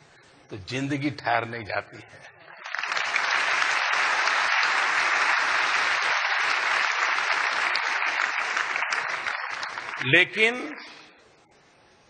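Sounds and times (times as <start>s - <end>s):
audience clapping: 2.4s - 11.0s.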